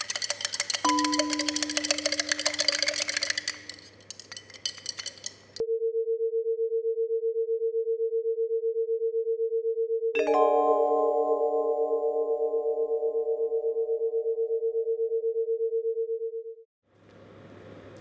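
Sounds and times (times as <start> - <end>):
light clinking and ticking: 0.0 - 5.6
held note: 0.8 - 3.8, 10.2 - 14.0.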